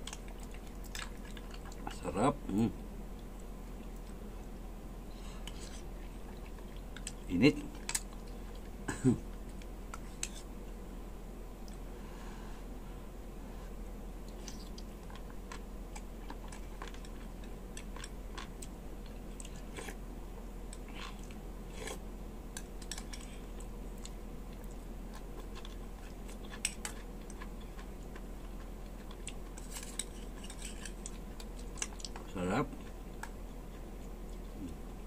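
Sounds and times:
wet chewing: 0.0 - 2.0, 22.6 - 34.9
low hum: 0.0 - 35.0.

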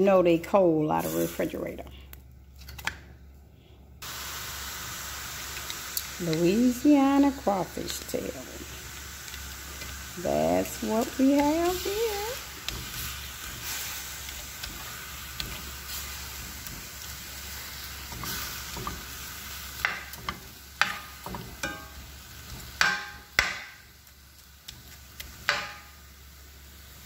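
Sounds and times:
food sizzling in a skillet: 4.0 - 27.0
spoon knocking against pan: 19.8 - 22.0.

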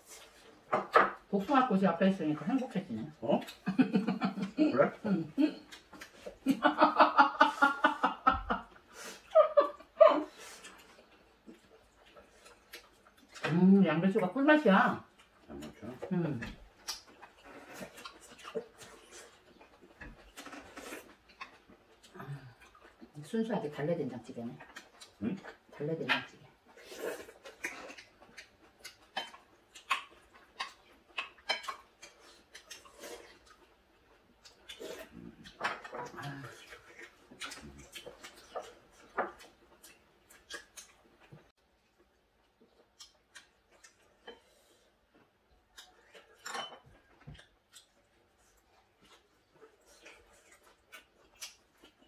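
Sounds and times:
person laughing: 6.5 - 8.7, 9.3 - 10.3.

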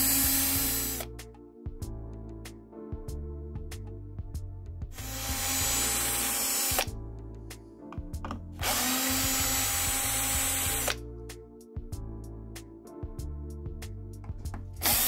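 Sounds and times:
electric screwdriver whining: 0.0 - 1.1, 5.0 - 6.9, 8.6 - 11.0, 14.8 - 15.0
music with steady beat: 0.0 - 15.0.

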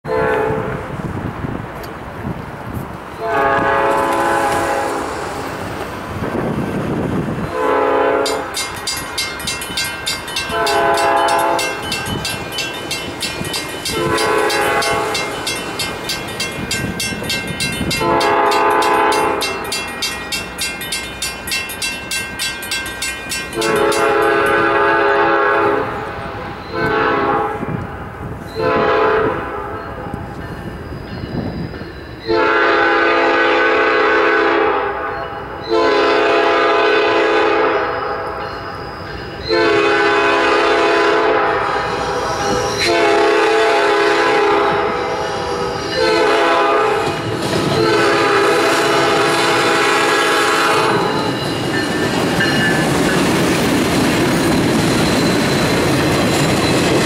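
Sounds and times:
locomotive air horn blasts: 0.1 - 0.9, 3.2 - 5.2, 7.5 - 8.5, 10.5 - 11.8, 13.9 - 15.3, 18.0 - 19.6, 23.6 - 27.8, 28.6 - 29.8, 32.3 - 35.1, 35.7 - 38.4, 39.5 - 51.3
crossing bell ringing: 7.4 - 25.3, 25.9 - 27.3, 29.6 - 32.8, 34.8 - 36.4, 37.6 - 57.0.

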